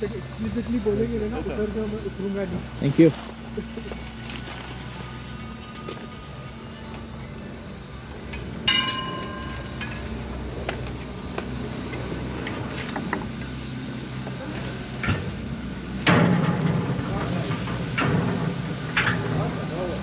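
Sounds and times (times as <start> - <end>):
machinery humming: 0.0 - 20.0
ringing metallic clank: 3.7 - 10.6, 16.0 - 20.0
metal clatter: 16.0 - 20.0.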